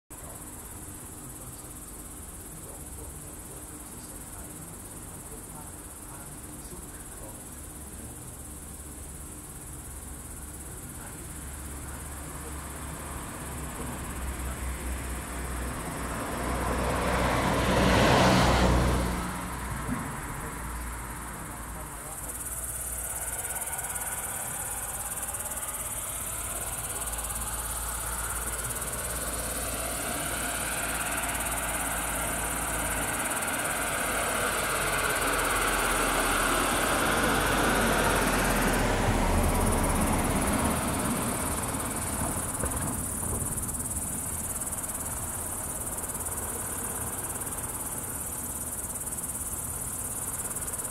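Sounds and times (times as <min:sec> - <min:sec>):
engine sound: 0:11.4 - 0:50.9
vehicle passing: 0:11.8 - 0:50.9.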